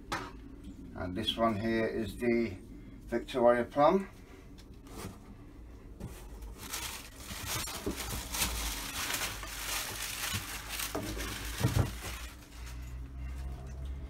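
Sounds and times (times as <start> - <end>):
plastic wrapping rustling: 6.0 - 13.8
cardboard packaging crinkling: 6.1 - 13.6.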